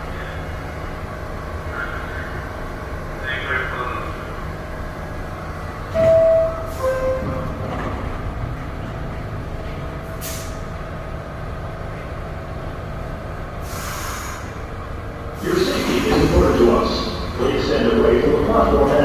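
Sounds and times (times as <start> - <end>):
train humming: 0.0 - 19.0
pneumatic air hisses: 10.2 - 10.6, 13.6 - 14.6.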